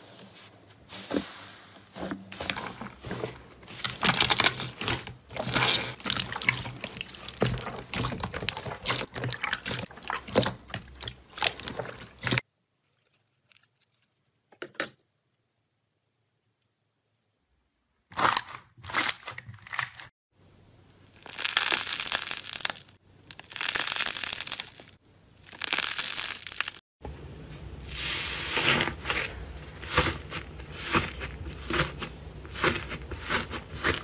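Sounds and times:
slime squish: 2.6s - 13.8s
hands squeezing sticky slime: 3.8s - 12.4s, 21.1s - 26.8s.

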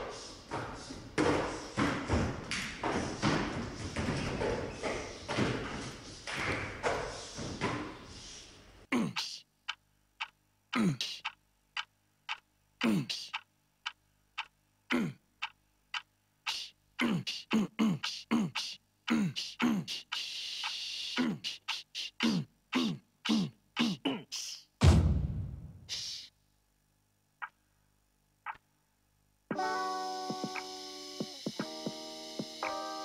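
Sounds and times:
stage thumps and scuffling: 0.0s - 8.1s
deep percussion thuds with clicks: 24.8s - 25.8s.

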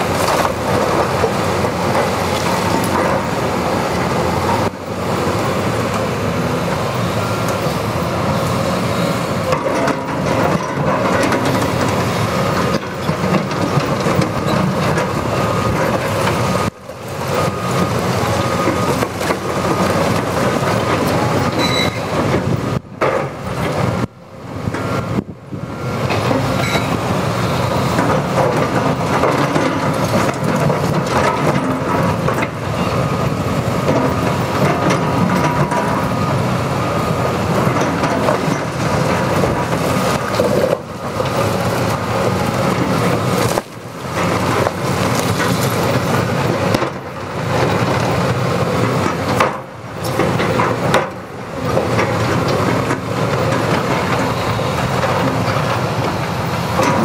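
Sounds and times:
excavator diesel engine under load: 0.0s - 57.0s.

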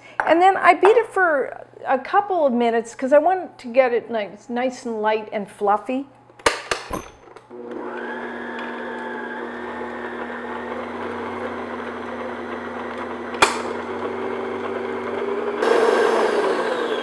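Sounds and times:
stand mixer motor hum: 7.5s - 17.0s.

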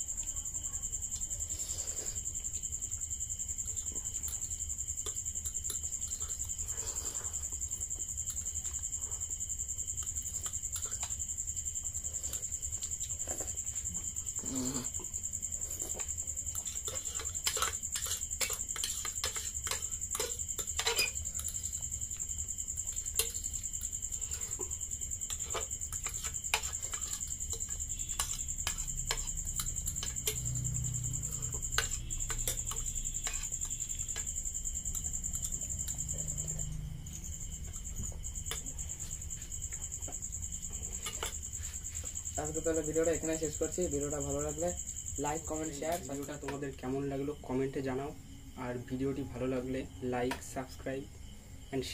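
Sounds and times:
forks scraping ceramic plates: 16.0s - 21.8s.

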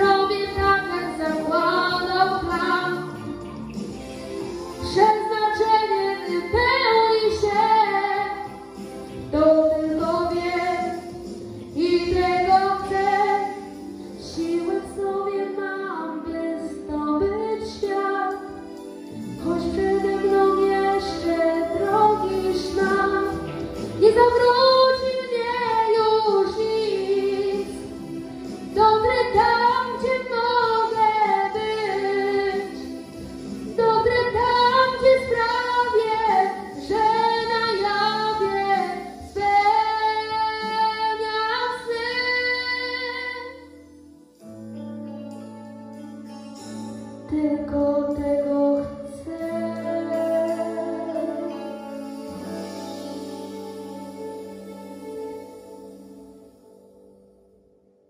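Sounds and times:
instrumental backing track: 0.0s - 58.0s
boy singing into a microphone: 47.3s - 52.4s.

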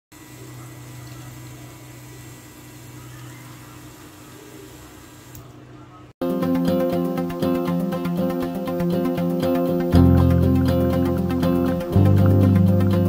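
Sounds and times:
guitar music: 6.2s - 13.0s.

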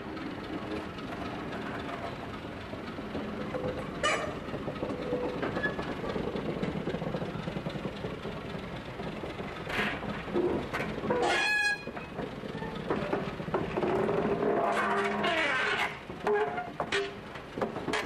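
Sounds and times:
steam locomotive wheels rumbling: 0.0s - 18.0s
brief wheel squeal: 4.0s - 5.9s, 11.0s - 13.0s, 14.5s - 17.2s.

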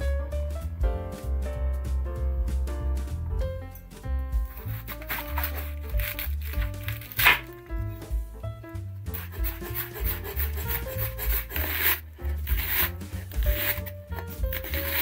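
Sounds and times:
light background music: 0.0s - 15.0s
knife slicing cabbage: 4.5s - 7.6s, 9.0s - 15.0s.

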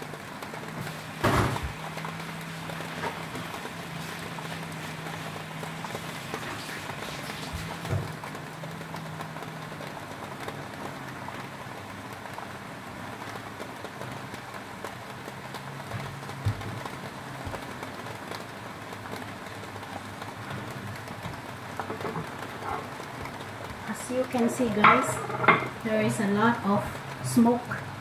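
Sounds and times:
food sizzling with small pops: 0.0s - 28.0s.

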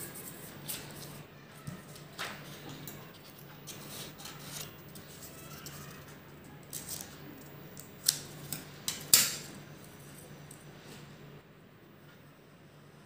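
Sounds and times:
scissors snipping paper: 0.0s - 9.5s.

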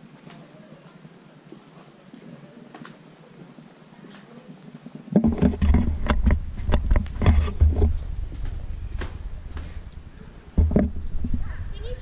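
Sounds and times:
handheld camera knocks and rumbling: 5.1s - 9.7s, 10.6s - 11.5s
quick footsteps on bare floor: 6.2s - 10.2s.

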